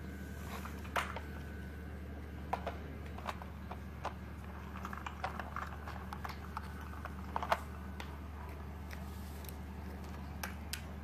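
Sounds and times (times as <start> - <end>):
steady low hum: 0.0 - 11.0
plastic toy clicks and clacks: 2.6 - 8.1.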